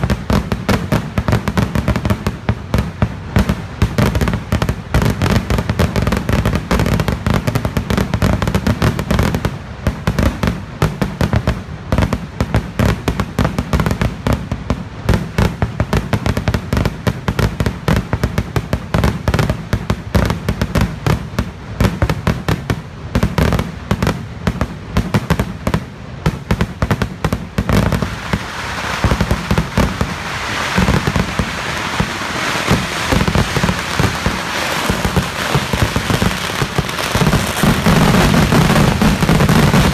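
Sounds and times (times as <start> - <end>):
firecracker bangs: 0.0 - 14.5, 21.1 - 39.9.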